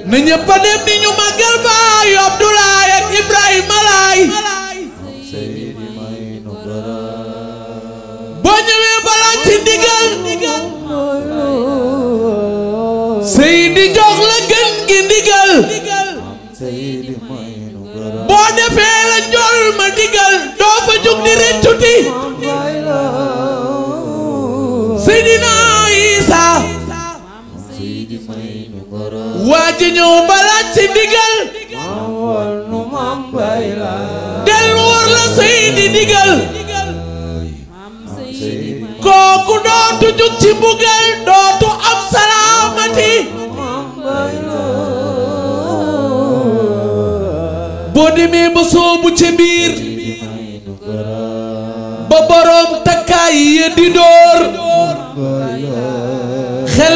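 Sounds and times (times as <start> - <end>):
low sustained backing: 0.0 - 8.5, 22.2 - 28.7, 31.9 - 40.2
person singing a religious chant: 0.0 - 56.9
man singing into a microphone: 29.4 - 50.8
steady low drone: 34.2 - 37.7.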